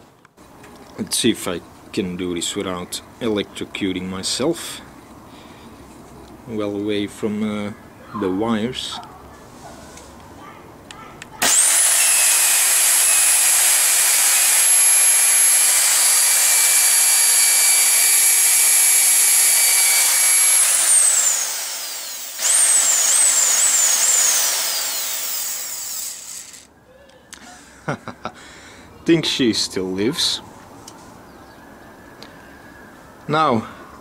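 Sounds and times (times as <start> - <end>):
electric motor whining: 11.4 - 26.7.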